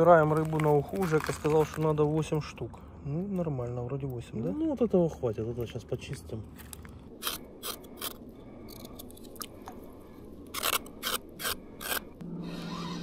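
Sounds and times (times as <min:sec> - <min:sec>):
steady low hum: 0:00.0 - 0:13.0
knife scraping fish scales: 0:10.5 - 0:12.2.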